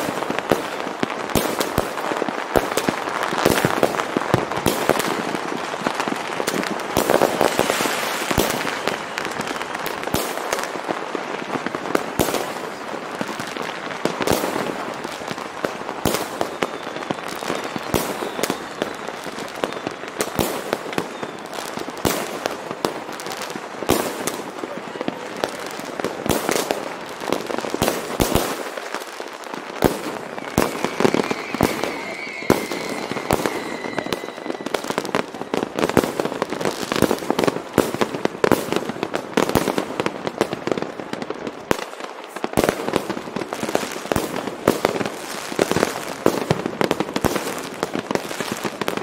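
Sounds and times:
fireworks banging and crackling: 0.0s - 49.0s
high whistle: 16.5s - 19.9s, 30.2s - 35.8s.

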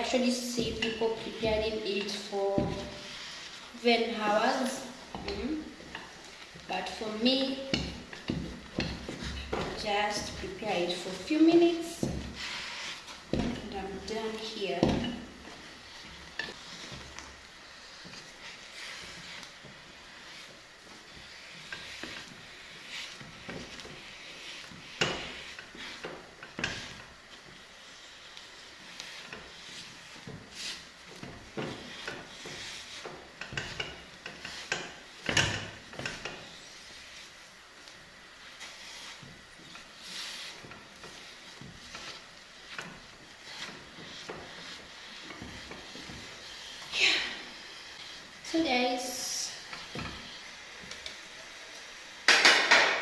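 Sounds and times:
wooden spoon scraping a pot: 0.0s - 51.6s
faint steady hiss: 0.0s - 53.0s
wooden stick knocking and scraping pan: 0.5s - 3.4s, 4.6s - 17.3s, 21.6s - 27.1s.

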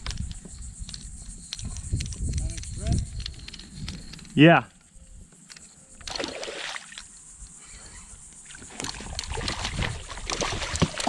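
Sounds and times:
fish splashing in water: 6.0s - 7.0s, 8.5s - 11.0s.

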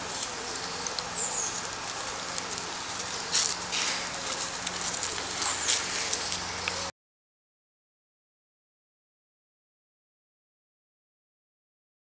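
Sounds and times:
dry leaves and twigs rustling: 0.0s - 6.9s
outdoor hiss: 0.0s - 6.9s.

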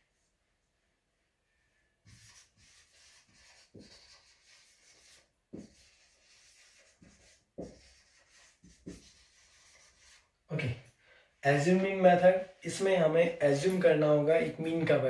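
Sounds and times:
marker scratching on whiteboard: 2.0s - 10.3s
marker knocking on board: 6.5s - 9.2s.

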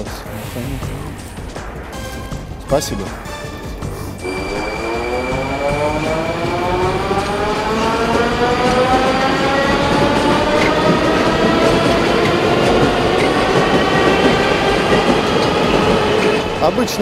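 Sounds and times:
traction motor whine rising: 4.2s - 12.5s
train wheels on rails: 4.2s - 17.0s.

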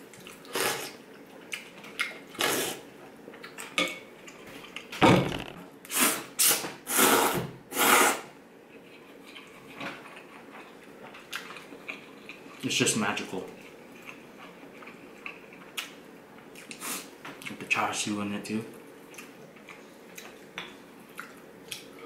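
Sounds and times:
person slurping noodles: 0.5s - 1.0s, 2.4s - 2.8s.

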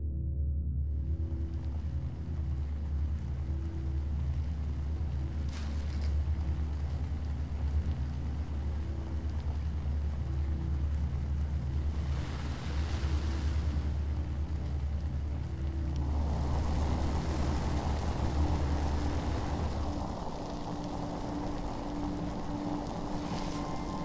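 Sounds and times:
low rumbling drone: 0.0s - 24.0s
rising hiss-like wash: 11.9s - 24.0s.

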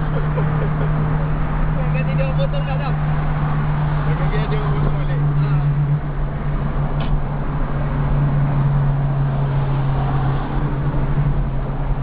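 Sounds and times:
car cabin road drone: 0.0s - 12.0s.

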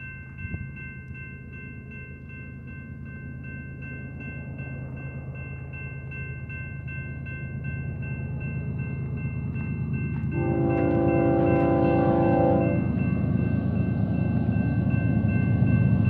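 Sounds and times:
crossing bell ringing: 0.0s - 16.0s
diesel locomotive rumble: 6.4s - 16.0s
locomotive air horn: 10.3s - 12.9s.

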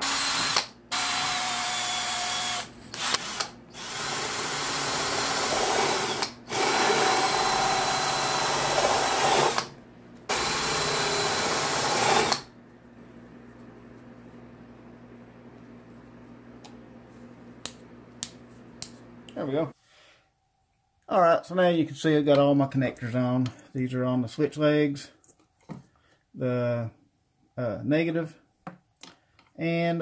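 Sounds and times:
cordless drill whining: 0.0s - 9.7s, 10.3s - 12.5s.

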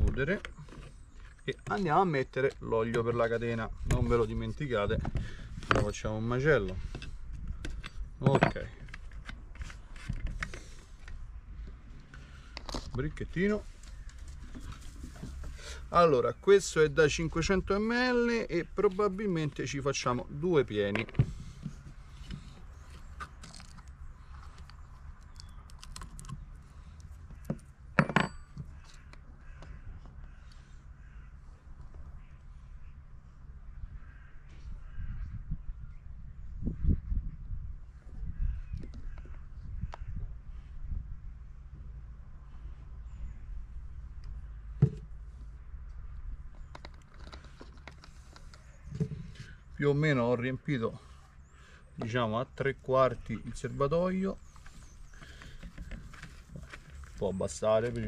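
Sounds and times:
wrench set down on wood: 7.8s - 8.8s, 28.0s - 28.7s
crow cawing: 28.7s - 31.6s, 33.9s - 35.3s.

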